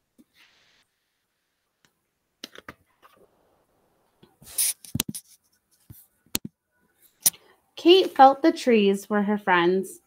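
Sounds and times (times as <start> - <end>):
page flipping swish: 4.4 - 5.4.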